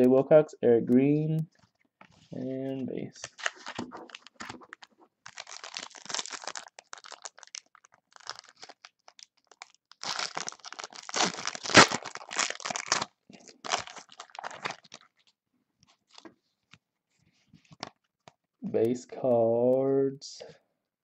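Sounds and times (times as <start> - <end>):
foil wrapper crinkling and tearing: 3.2 - 15.3.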